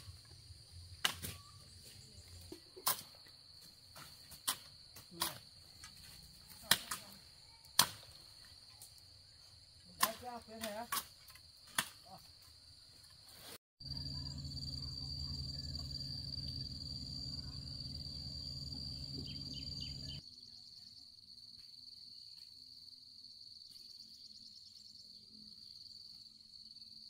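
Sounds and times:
loud low rumble: 13.8s - 20.2s
faint chirps: 13.8s - 21.5s
insects trilling drone: 13.8s - 27.0s.

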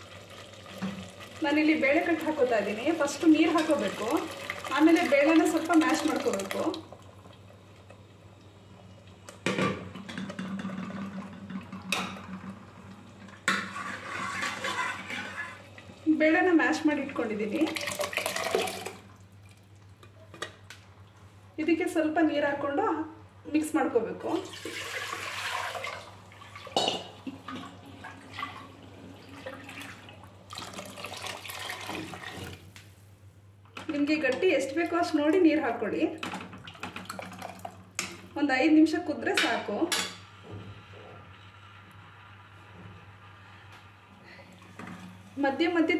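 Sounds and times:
liquid pouring into a pot: 0.0s - 8.0s, 17.6s - 19.7s, 24.4s - 32.6s, 36.6s - 38.0s
ladle scraping steel pot: 13.5s - 15.7s.

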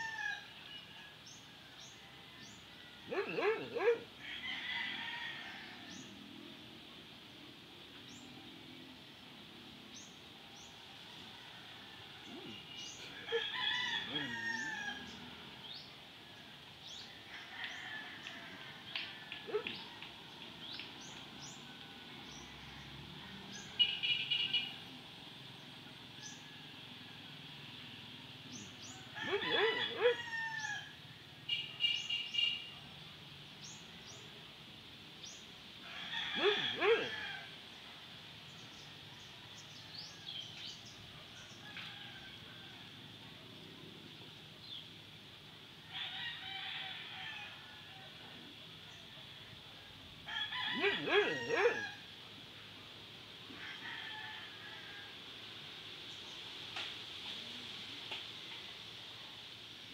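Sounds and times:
rooster crowing: 0.0s - 1.2s, 2.4s - 6.1s, 11.5s - 15.4s, 28.9s - 31.0s, 35.8s - 37.6s, 45.8s - 48.2s, 50.2s - 52.1s, 53.5s - 55.2s.

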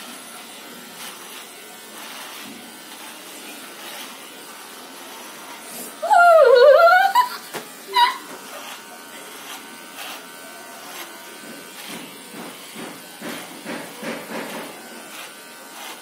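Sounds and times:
electric beard trimmer buzzing: 0.0s - 16.0s
drawn-out vocal cry: 6.0s - 8.4s.

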